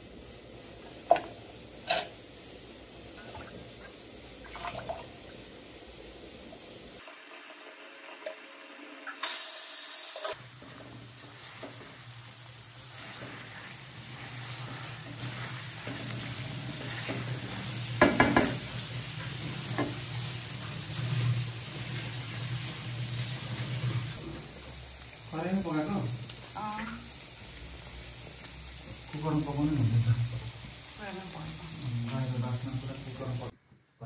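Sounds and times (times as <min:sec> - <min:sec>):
food sizzling in a metal pan: 0:00.0 - 0:33.6
spatula scraping and knocking pan: 0:12.9 - 0:22.7.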